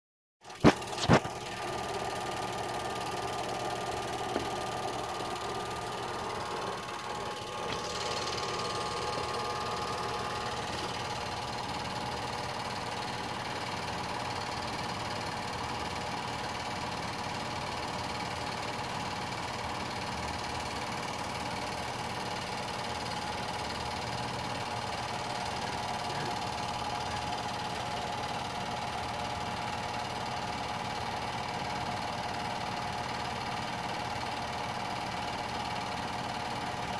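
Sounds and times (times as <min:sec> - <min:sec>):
film projector whirring: 0:00.4 - 0:36.9.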